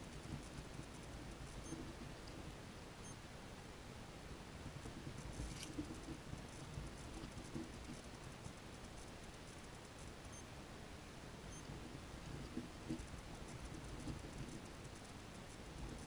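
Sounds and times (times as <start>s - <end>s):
sharp ticks and scrapes: 0.0s - 2.4s, 4.7s - 10.5s, 11.5s - 16.0s.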